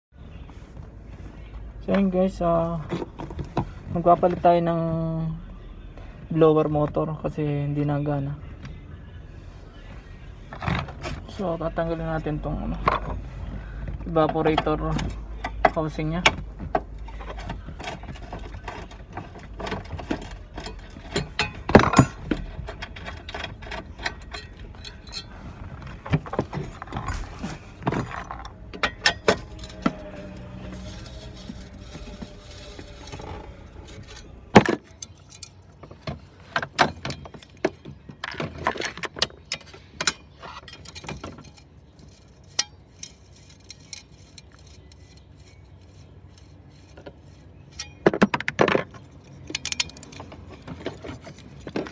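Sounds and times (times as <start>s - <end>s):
metal tools clinking and knocking: 17.0s - 51.9s.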